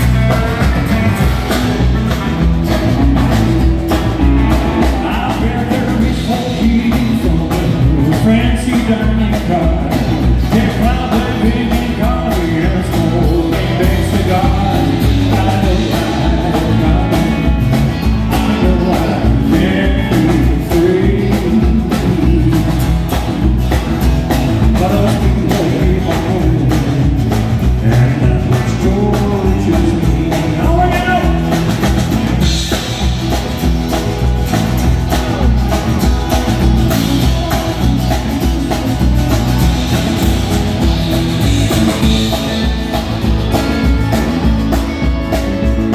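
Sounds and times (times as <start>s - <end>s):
man singing: 0.0s - 2.0s, 4.4s - 23.3s, 24.3s - 33.4s, 35.1s - 45.9s
live country band: 0.0s - 45.9s.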